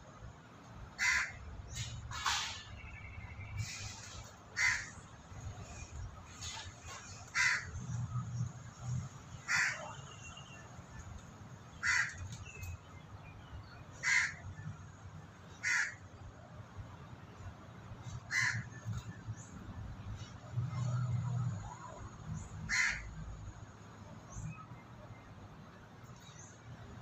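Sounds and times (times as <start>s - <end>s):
crow cawing: 1.0s - 1.4s, 4.6s - 4.9s, 7.4s - 7.7s, 11.8s - 12.2s, 14.0s - 14.4s, 15.6s - 16.0s, 18.3s - 18.6s, 22.7s - 23.1s.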